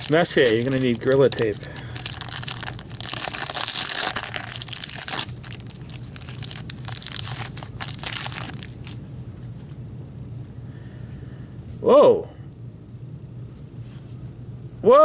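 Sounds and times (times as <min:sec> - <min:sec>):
wrapper tearing and crinkling: 0:00.0 - 0:09.0.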